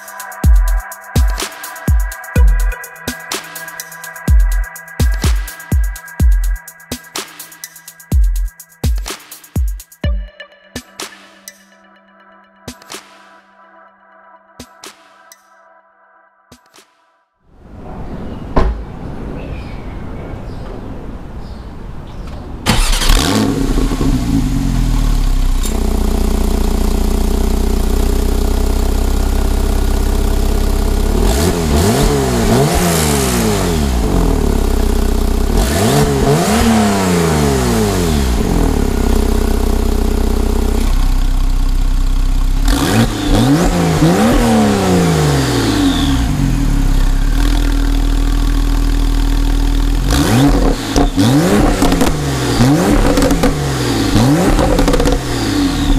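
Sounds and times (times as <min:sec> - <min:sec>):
car engine idling and revving: 0:22.7 - 0:55.9.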